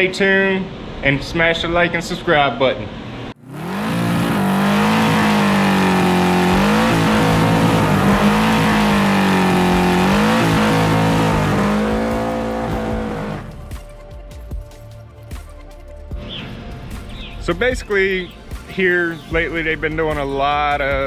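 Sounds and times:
car engine at high revs: 3.3s - 13.7s
tire spinning on pavement: 3.4s - 13.7s.

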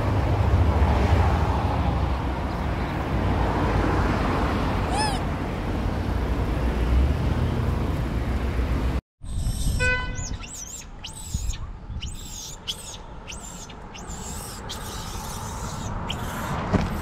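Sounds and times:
monkey squealing: 4.9s - 5.3s, 9.3s - 17.0s.

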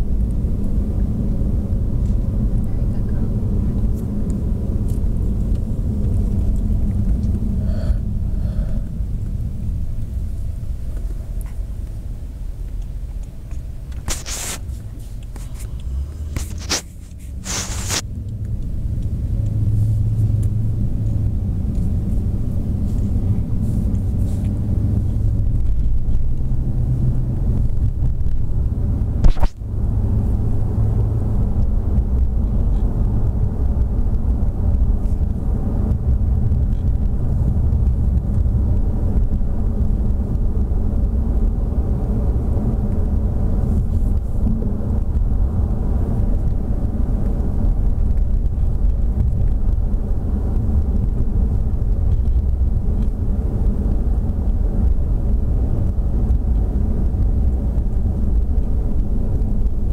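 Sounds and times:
car cabin rumble: 0.0s - 59.9s
camera handling scrapes: 14.0s - 14.8s, 15.4s - 18.0s.

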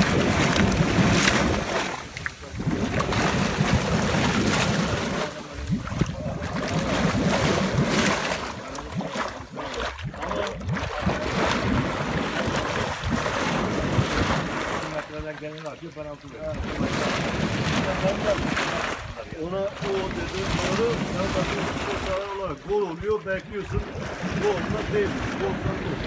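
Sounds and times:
water gushing into a pool: 0.0s - 22.8s, 23.4s - 26.0s.

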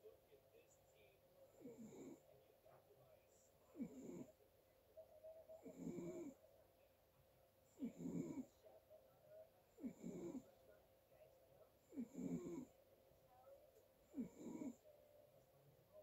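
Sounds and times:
person snoring faintly: 1.5s - 2.3s, 3.6s - 4.4s, 5.5s - 6.5s, 7.7s - 8.7s, 9.7s - 10.7s, 11.8s - 12.8s, 14.0s - 14.9s.

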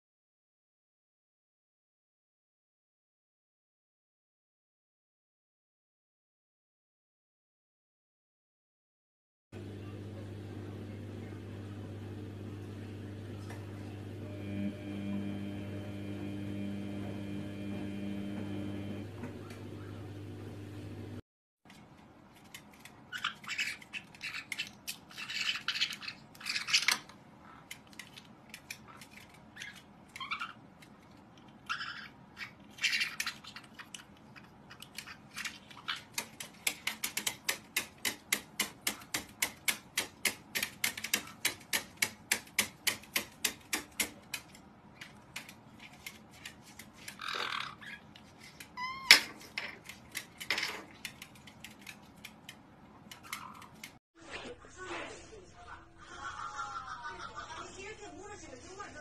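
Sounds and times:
parrots chirping and squawking: 23.0s - 27.7s, 28.7s - 36.4s, 47.0s - 49.8s.

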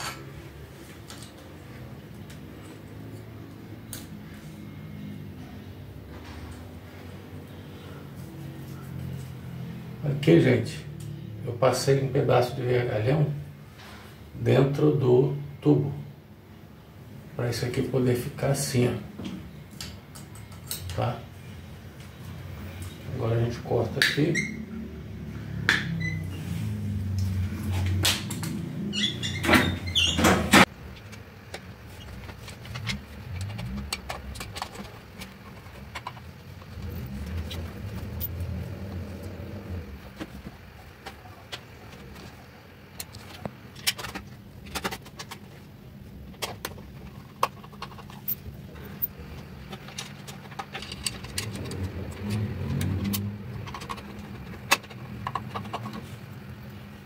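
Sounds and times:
low steady rumble: 30.6s - 57.0s.

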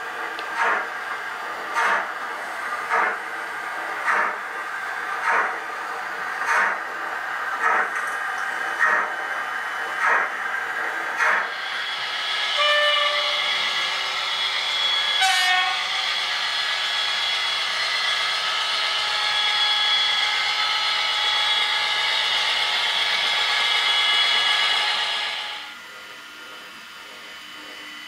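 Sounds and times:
model steam locomotive chuffs: 0.0s - 27.8s
model locomotive horn blasts: 12.6s - 13.4s, 15.2s - 15.8s.

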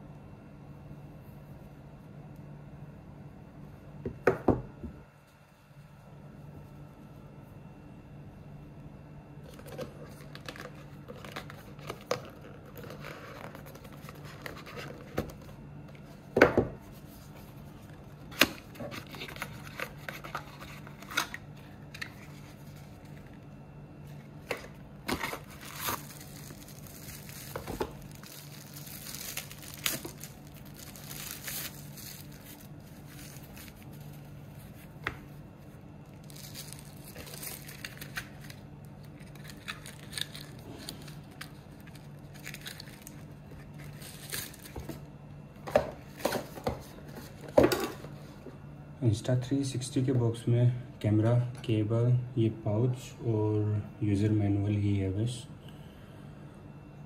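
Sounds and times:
cardboard and paper rustling: 9.4s - 23.4s, 24.0s - 45.1s, 45.7s - 48.4s.

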